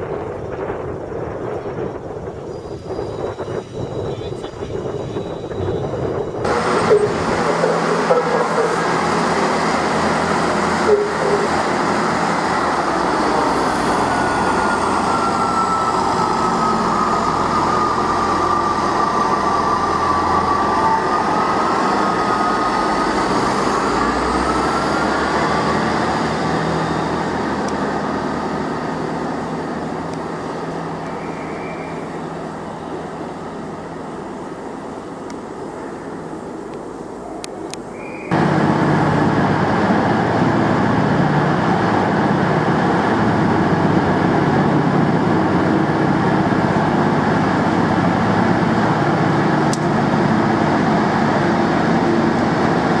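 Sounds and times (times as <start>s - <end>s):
diesel train running past: 0.0s - 53.0s
train whining note: 4.7s - 33.0s.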